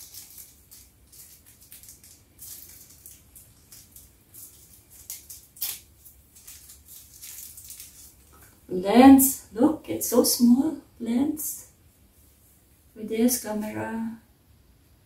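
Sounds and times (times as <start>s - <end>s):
packaging rustling and crinkling: 0.0s - 8.6s.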